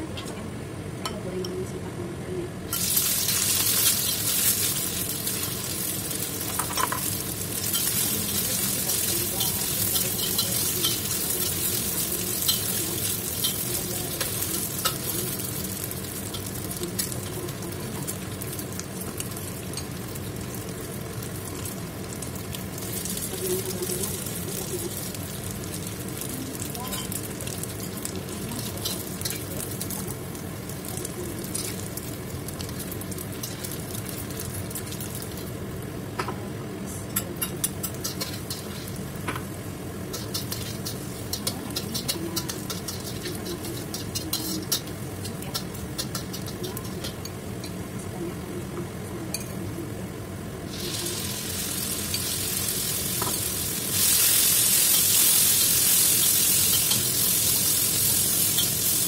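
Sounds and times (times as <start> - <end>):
oil sizzling: 2.7 - 59.0
metal spatula scraping a wok: 37.8 - 39.0.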